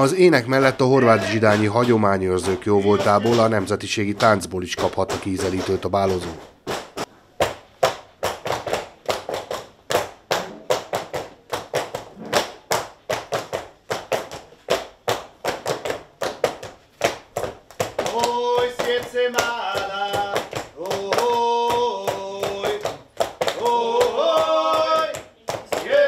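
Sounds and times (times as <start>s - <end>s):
sharp rhythmic dance beats: 0.0s - 26.0s
voices singing long notes: 23.6s - 25.1s.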